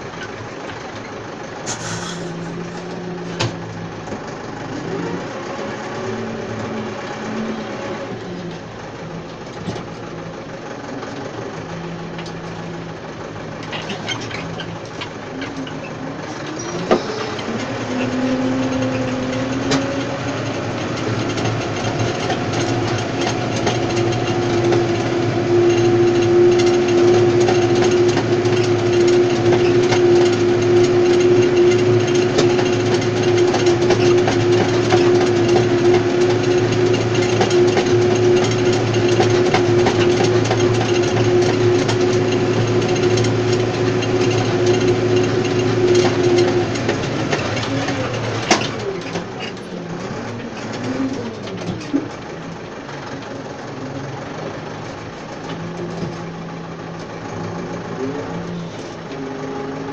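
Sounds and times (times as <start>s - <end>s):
cultivator frame clattering: 0.0s - 59.9s
tractor engine under load: 0.0s - 59.9s.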